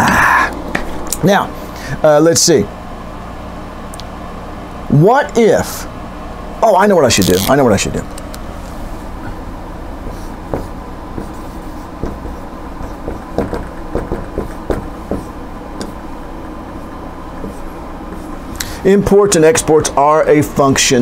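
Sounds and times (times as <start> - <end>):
low room hum: 0.0 - 21.0
marker pen writing on whiteboard: 10.1 - 16.0, 17.4 - 18.4.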